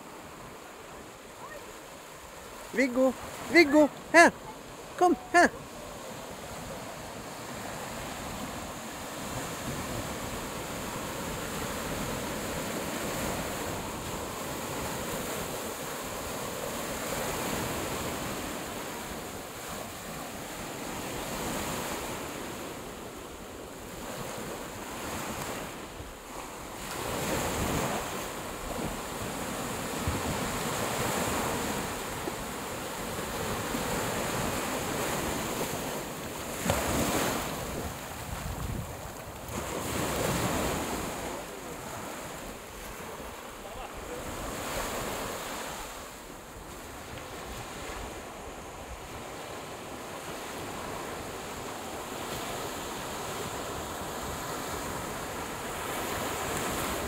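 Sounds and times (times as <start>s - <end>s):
waves breaking on shore: 0.0s - 57.0s
wind buffeting microphone: 36.8s - 40.9s.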